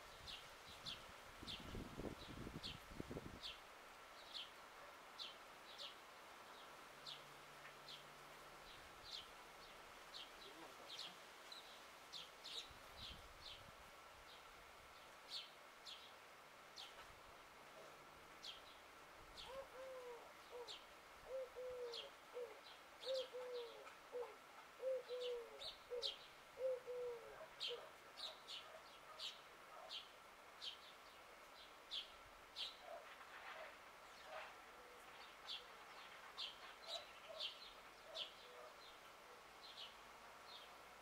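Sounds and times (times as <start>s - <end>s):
small birds chirping: 17.8s - 40.8s
dove cooing: 19.4s - 27.9s, 38.0s - 38.8s.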